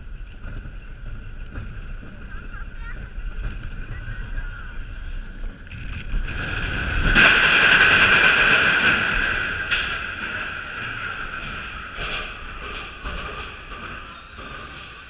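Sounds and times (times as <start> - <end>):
roller coaster wheels roaring: 0.0 - 15.0
wind rushing past microphone: 0.0 - 15.0.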